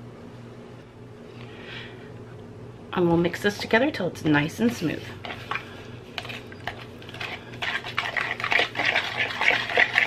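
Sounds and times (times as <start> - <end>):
whisk scraping and tapping bowl: 4.6 - 10.0.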